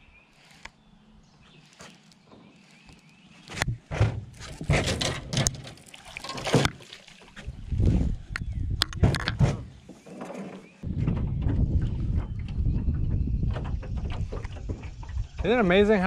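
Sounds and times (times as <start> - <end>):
water splashing: 4.3 - 8.0.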